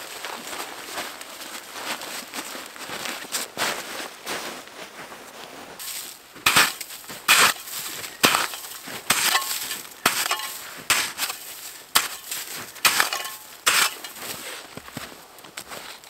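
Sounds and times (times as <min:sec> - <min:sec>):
shovel scraping crusted snow: 0:05.8 - 0:16.0.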